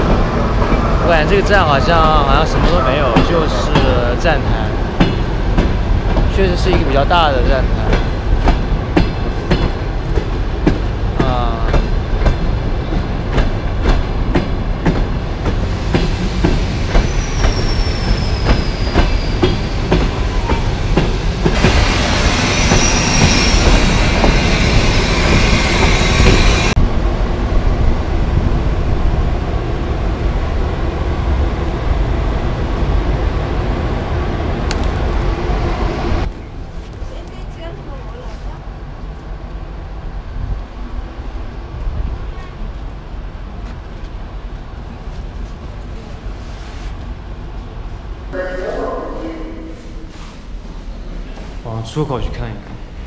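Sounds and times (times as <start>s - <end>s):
train wheels clacking: 0.0s - 26.8s
high wheel squeal: 17.0s - 19.8s, 21.8s - 26.7s.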